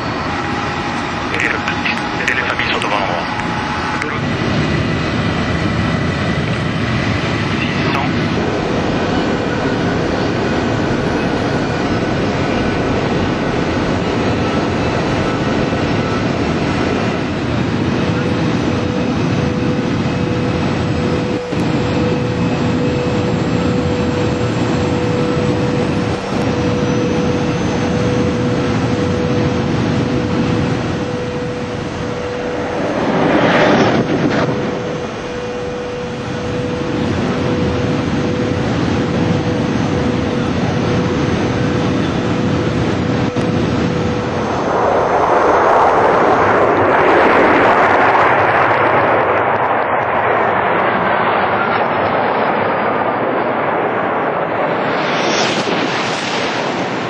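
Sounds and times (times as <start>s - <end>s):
high-speed train rushing past: 0.0s - 21.6s, 30.8s - 39.5s, 41.2s - 49.8s, 53.8s - 57.0s.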